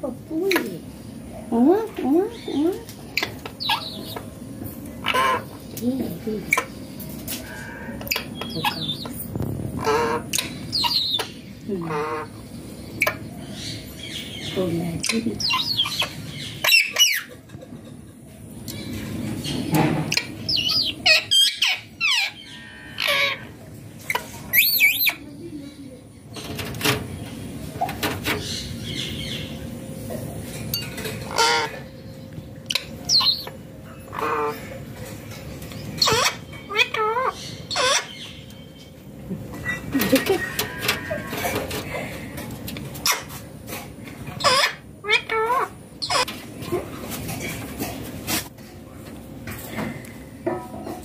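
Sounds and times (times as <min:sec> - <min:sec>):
parakeet calls: 0:36.0 - 0:38.4, 0:44.4 - 0:46.3.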